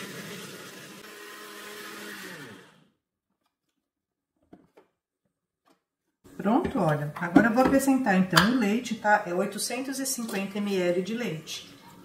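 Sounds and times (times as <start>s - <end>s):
blender motor running: 0.0s - 3.0s.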